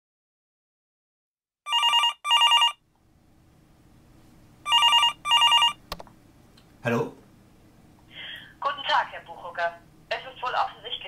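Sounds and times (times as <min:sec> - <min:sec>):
telephone ringing: 0:01.7 - 0:02.8, 0:04.7 - 0:05.8.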